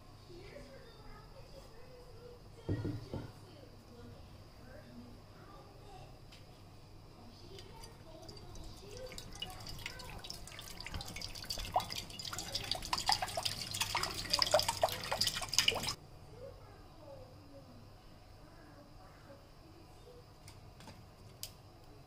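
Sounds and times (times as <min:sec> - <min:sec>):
water pouring into metal pan: 0:07.4 - 0:16.0.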